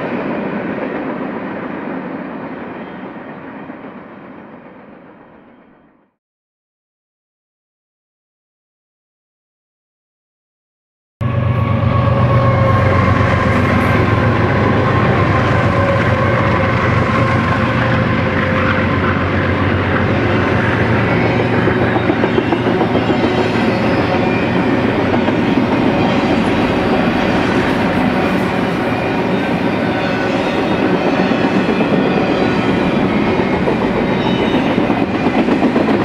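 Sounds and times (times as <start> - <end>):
diesel locomotive engine hum: 11.2 - 36.0
train wheels rolling on rails: 11.4 - 36.0.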